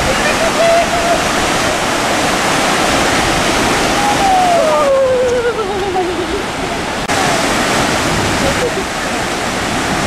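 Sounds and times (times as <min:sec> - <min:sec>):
ocean surf breaking: 0:00.0 - 0:10.0
person wavering ooh: 0:04.0 - 0:06.3.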